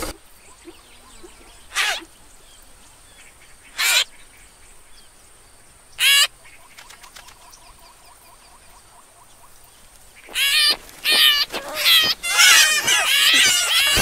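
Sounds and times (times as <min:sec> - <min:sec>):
faint background birdsong: 0:00.0 - 0:14.0
loud chick calls: 0:03.7 - 0:04.1, 0:06.0 - 0:06.3, 0:10.3 - 0:14.0.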